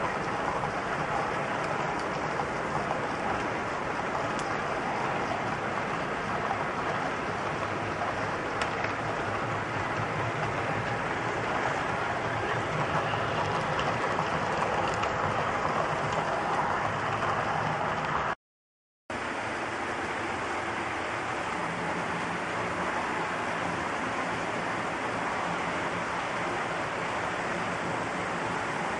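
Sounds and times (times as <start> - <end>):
metal wheels rolling on rails: 0.0 - 18.4.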